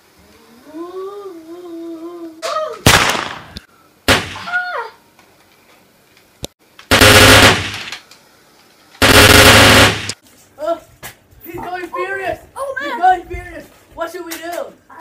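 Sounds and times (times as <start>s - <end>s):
machine-gun sound effects: 4.1s - 4.5s, 6.9s - 8.0s, 9.0s - 10.2s.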